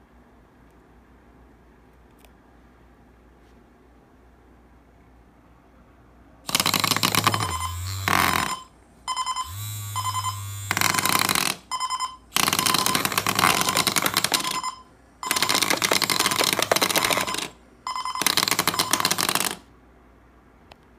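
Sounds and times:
bed shaker vibration hum: 6.4s - 19.6s
alarm clock ringing: 7.2s - 19.2s.

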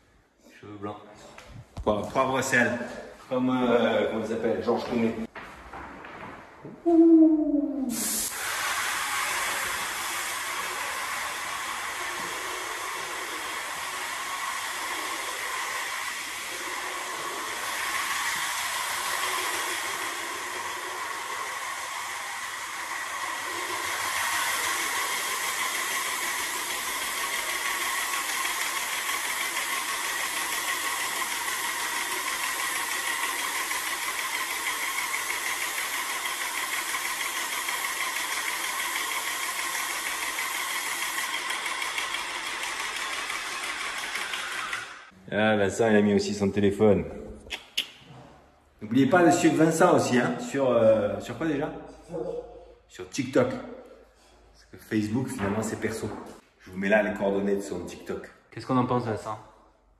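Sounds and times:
paint sprayer hiss: 7.8s - 45.2s
sprayer pump running: 7.9s - 45.1s.

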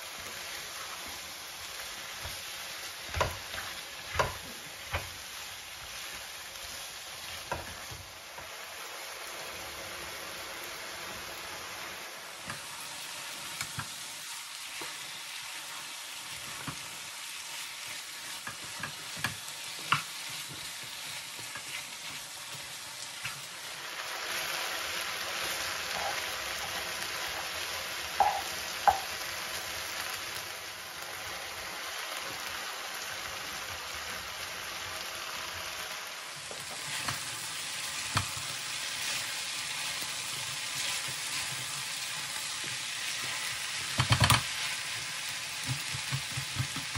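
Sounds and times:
food sizzling in a frying pan: 0.0s - 46.9s
spatula knocking the pan: 3.0s - 5.1s, 28.2s - 29.1s, 45.6s - 46.9s.

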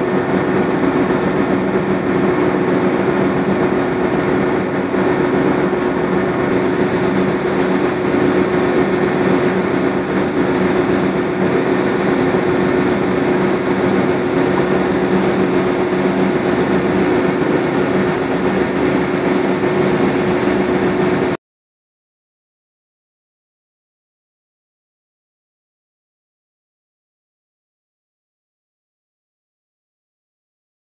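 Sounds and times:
ship diesel engine droning: 0.0s - 21.4s.

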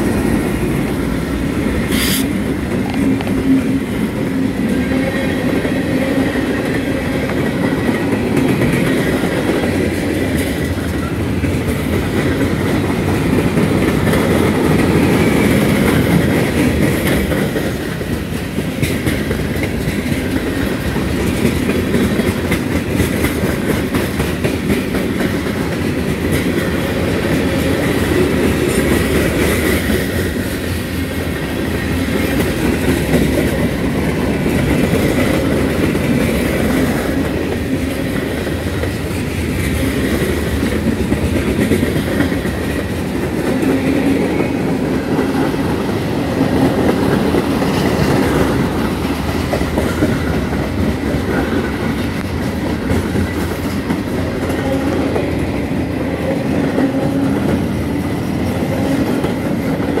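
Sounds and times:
train wheels rumbling on rails: 0.0s - 60.0s
wheels clacking over rail joints: 0.0s - 60.0s.

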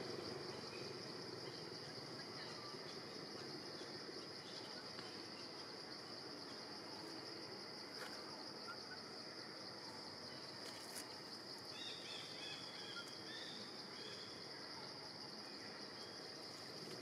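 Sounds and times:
high-pitched insect chorus: 0.0s - 17.0s
faint chirping calls: 7.9s - 16.8s.

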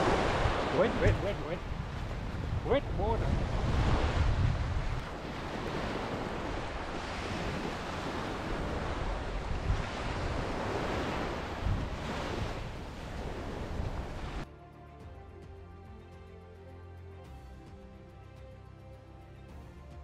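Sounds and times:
wind rumbling on microphone: 0.0s - 14.4s
sea waves breaking on shore: 0.0s - 14.5s.

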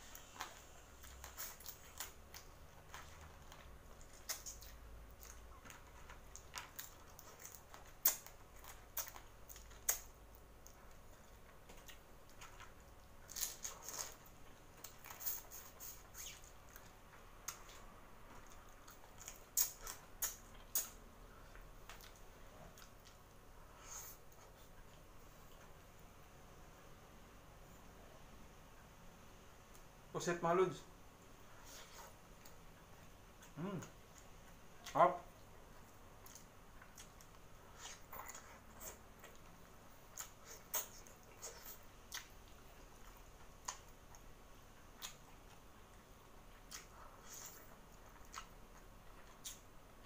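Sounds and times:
chewing: 0.0s - 25.8s, 31.5s - 50.0s
lip smacks: 4.0s - 25.7s, 35.9s - 49.7s
wet mouth clicks: 4.1s - 4.8s, 15.1s - 16.5s.

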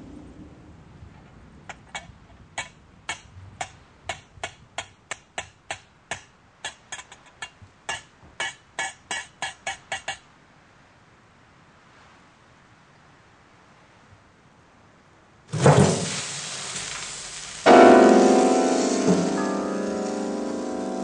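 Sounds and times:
sharp percussive clicks: 1.8s - 10.2s.

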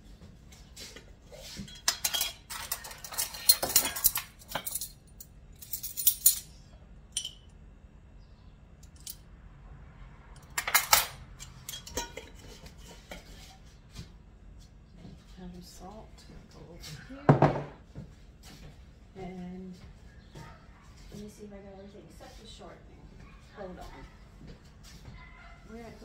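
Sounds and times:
metal spoons clinking: 1.7s - 6.5s, 7.1s - 7.5s, 10.5s - 12.4s.

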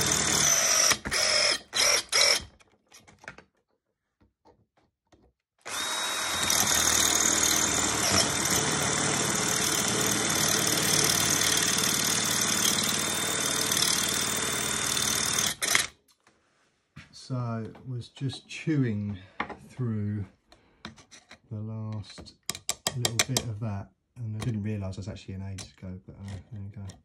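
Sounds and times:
cordless drill boring into metal: 0.0s - 2.5s, 5.6s - 15.9s.

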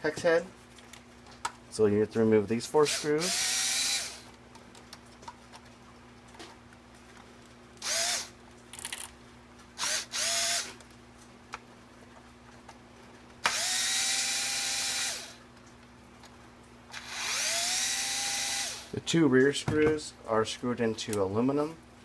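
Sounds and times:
cordless drill motor: 2.8s - 4.3s, 7.8s - 9.1s, 9.8s - 10.8s, 13.4s - 15.4s, 16.9s - 19.0s.

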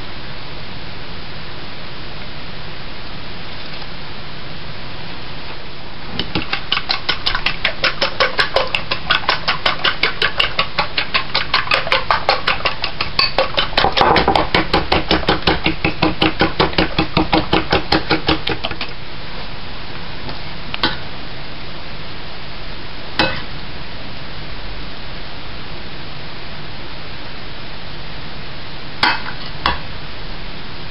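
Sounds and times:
fork beating eggs in bowl: 6.2s - 19.0s.

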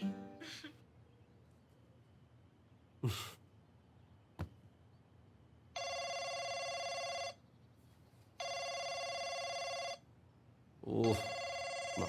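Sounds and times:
mobile phone ringing: 5.8s - 7.4s, 8.4s - 10.0s, 11.0s - 12.0s.

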